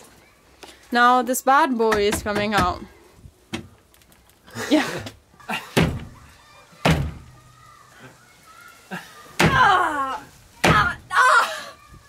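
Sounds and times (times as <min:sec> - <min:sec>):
wooden panel thudding: 0:05.8 - 0:06.2, 0:06.8 - 0:07.3, 0:09.4 - 0:09.7.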